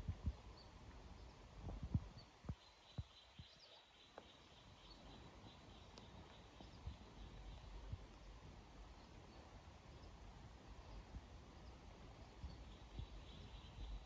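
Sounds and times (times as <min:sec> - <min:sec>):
soft low thumps: 0:00.0 - 0:00.5, 0:01.6 - 0:03.5.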